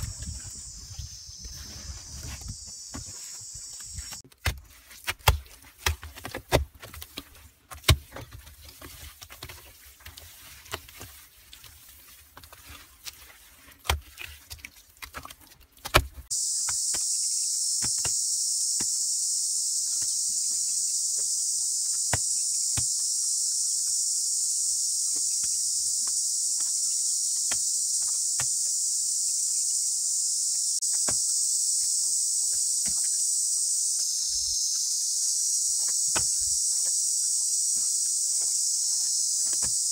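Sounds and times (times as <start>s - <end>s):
high-pitched insect drone: 0.0s - 4.2s, 16.3s - 39.9s.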